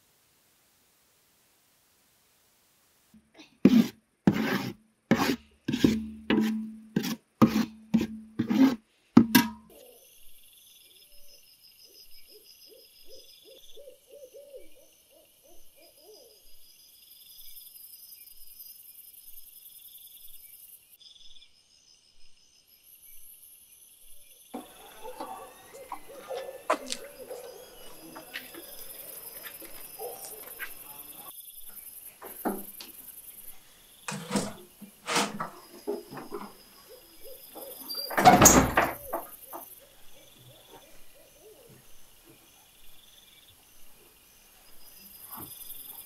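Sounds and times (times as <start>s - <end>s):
metal ladle scraping metal pot: 3.7s - 9.6s, 34.1s - 36.6s
night insects chirping: 9.7s - 46.0s
faint low calls: 24.6s - 31.3s.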